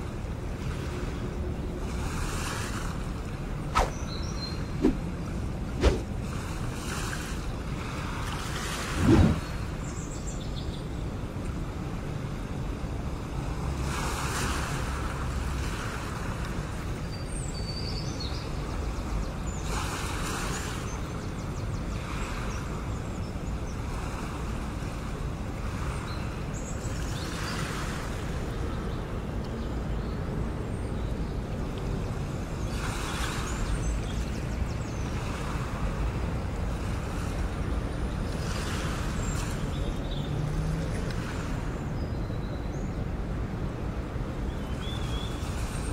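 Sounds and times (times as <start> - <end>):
waves washing onto shore: 0.0 - 10.0, 11.1 - 17.1, 18.6 - 29.4, 31.6 - 41.9, 43.0 - 45.9
steady low rumble: 9.0 - 9.9.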